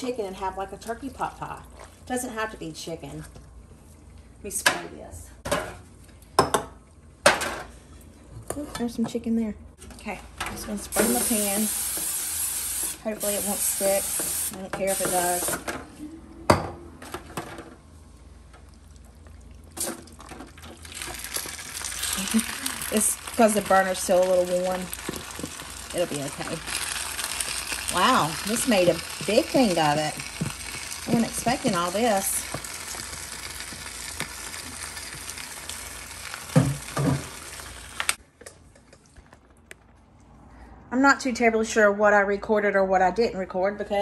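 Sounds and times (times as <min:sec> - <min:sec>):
food sizzling: 0:10.9 - 0:15.7, 0:18.8 - 0:38.2.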